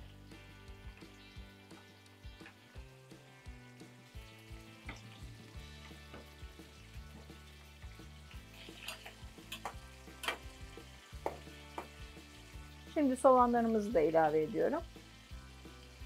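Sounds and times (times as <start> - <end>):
hot oil sizzling: 0.0 - 16.0
spoon clicking against pot: 8.8 - 10.4.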